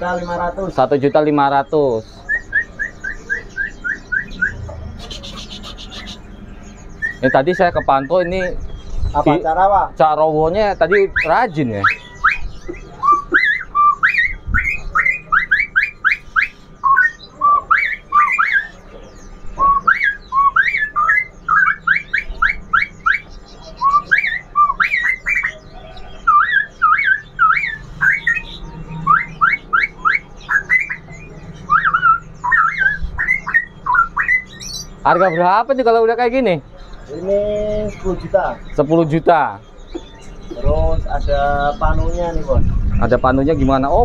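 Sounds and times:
bird singing whistled phrases: 1.0s - 9.4s, 10.8s - 35.8s.

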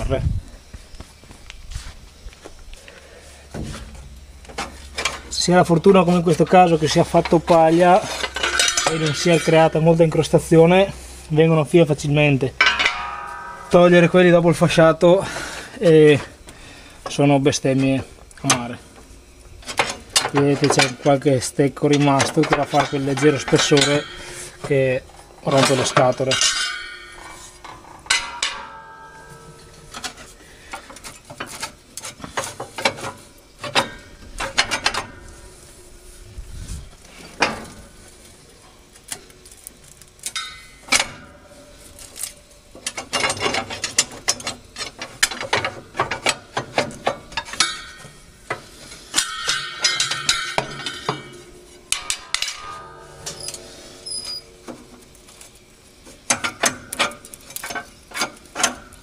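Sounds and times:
metal knives clanking and scraping: 6.2s - 10.4s, 12.6s - 15.7s, 21.8s - 35.2s, 49.1s - 54.5s.

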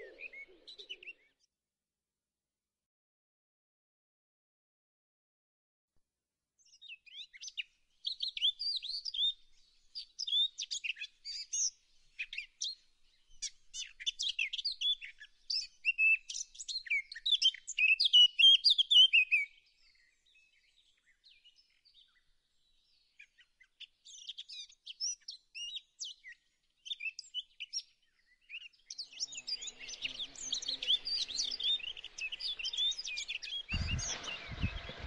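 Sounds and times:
songbirds chirping: 0.0s - 1.4s, 6.6s - 35.0s.

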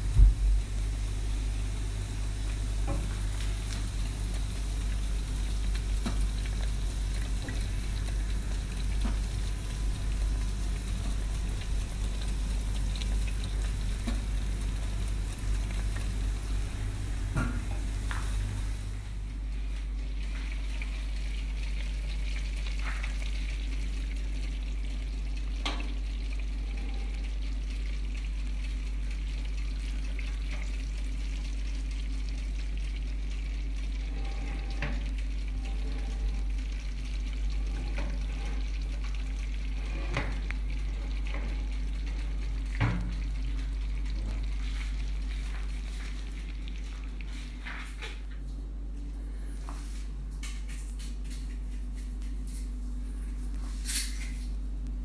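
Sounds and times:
food sizzling in baking tray: 0.0s - 19.3s
low hum: 0.0s - 20.1s.

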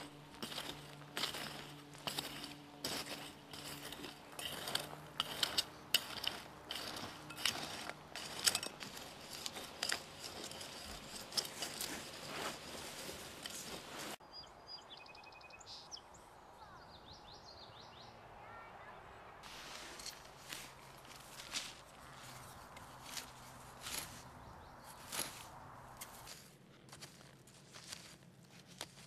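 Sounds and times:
weeder blade scraping soil: 0.0s - 14.2s, 19.4s - 26.4s.

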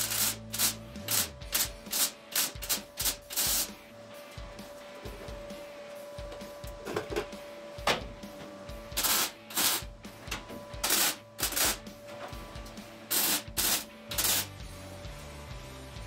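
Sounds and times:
welder welding bursts: 0.0s - 3.8s, 8.9s - 10.0s, 10.8s - 11.9s, 13.1s - 14.6s.

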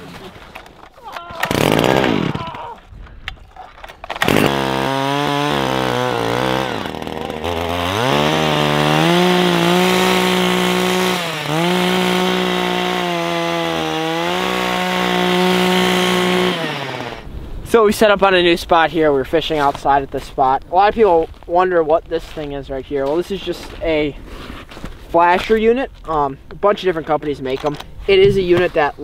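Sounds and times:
ice auger engine running: 1.4s - 2.4s, 4.2s - 17.2s.

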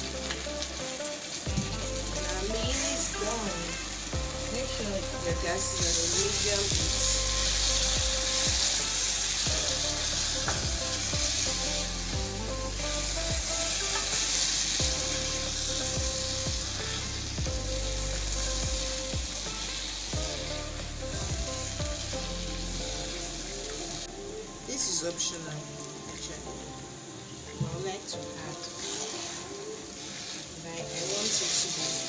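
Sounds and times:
sizzling hiss from pot: 0.0s - 32.0s
wooden spoon scraping a pot: 28.6s - 32.0s.

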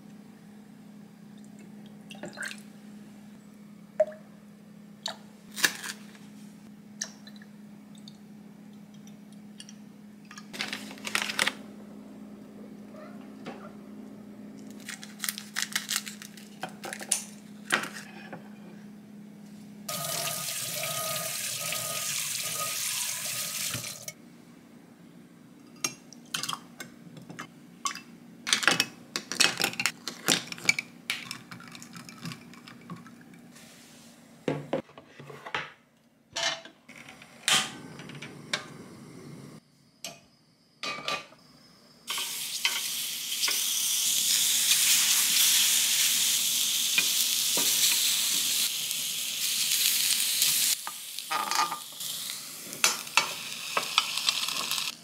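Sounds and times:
loud steady hiss: 42.1s - 55.0s.

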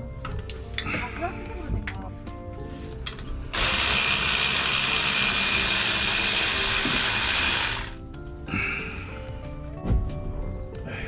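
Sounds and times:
power tool whirring: 3.5s - 8.1s.

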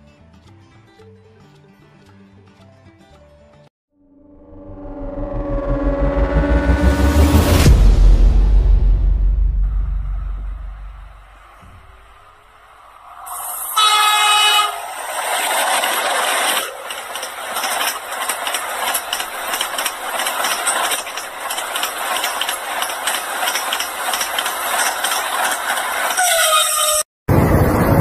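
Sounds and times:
train rushing past: 4.2s - 28.0s
wheels clicking over rail joints: 11.4s - 27.0s
train horn blast: 13.6s - 15.0s.

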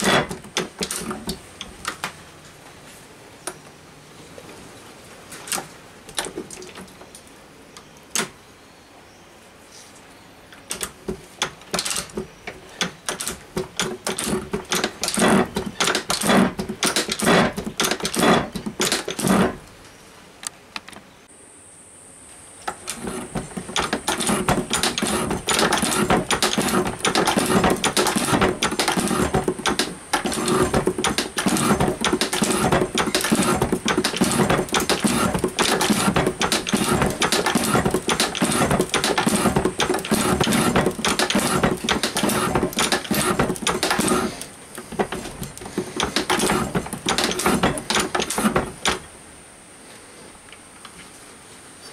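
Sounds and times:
tool scraping through metal: 0.0s - 1.4s, 12.8s - 19.6s, 22.7s - 49.0s.

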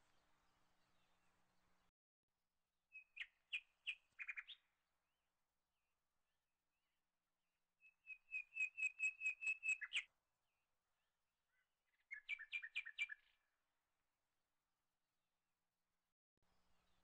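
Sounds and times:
bird chirping: 2.9s - 4.7s, 7.8s - 10.1s, 11.5s - 13.4s.

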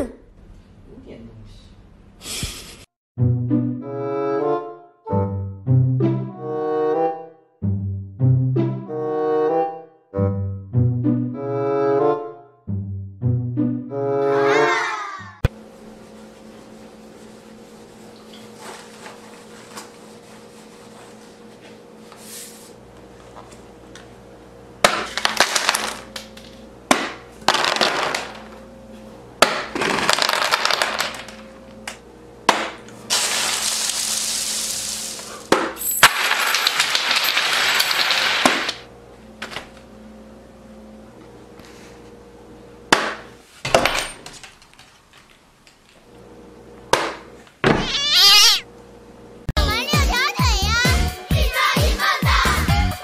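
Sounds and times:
paper crumpling and tearing: 33.1s - 35.5s.

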